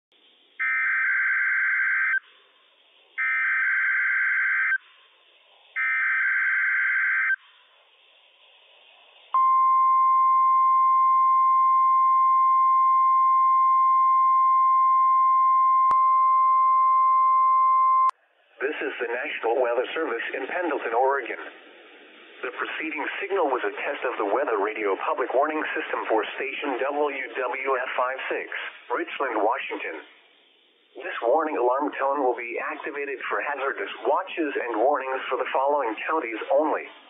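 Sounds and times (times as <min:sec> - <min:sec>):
steady warning alarm tone: 0:00.6 - 0:02.2, 0:03.2 - 0:04.8, 0:05.8 - 0:07.4.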